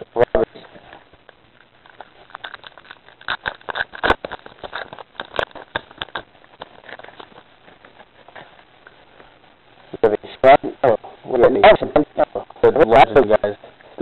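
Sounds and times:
card pack wrapper crinkling: 0:01.1 - 0:09.0.

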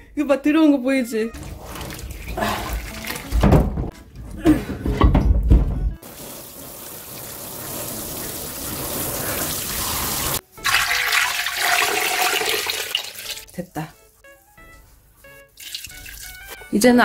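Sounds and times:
water poured into pot: 0:01.4 - 0:03.2, 0:06.0 - 0:13.5, 0:15.5 - 0:16.6
kitchen tap running: 0:01.4 - 0:03.5, 0:06.0 - 0:13.5, 0:15.6 - 0:16.5
water splashing into steel sink: 0:01.4 - 0:03.6, 0:06.0 - 0:13.5, 0:15.6 - 0:16.5.

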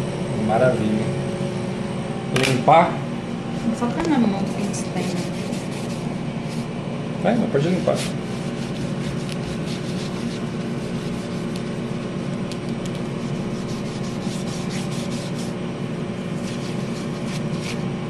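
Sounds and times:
low machine hum: 0:00.0 - 0:18.0
tissue rubbing on wood: 0:04.4 - 0:06.8, 0:07.6 - 0:15.6, 0:16.3 - 0:17.9.

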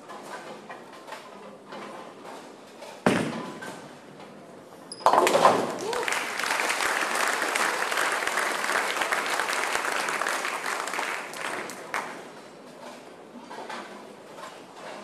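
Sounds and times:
crowd applauding: 0:05.8 - 0:12.2.

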